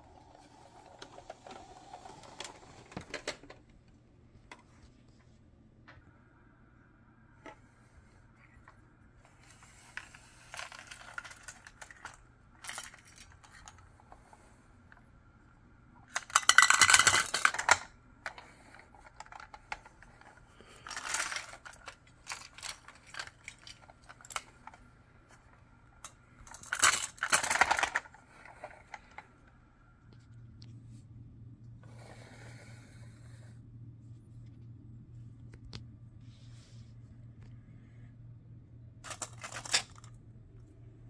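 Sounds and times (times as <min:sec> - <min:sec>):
marbles and toys clattering: 0:09.5 - 0:13.8, 0:16.0 - 0:24.8, 0:26.0 - 0:29.3, 0:39.0 - 0:40.2.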